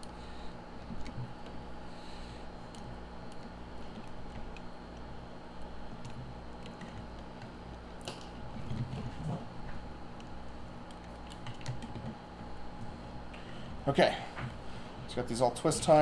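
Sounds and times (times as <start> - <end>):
steady low hum: 0.0 - 16.0
wires clicking and rustling: 2.6 - 13.4.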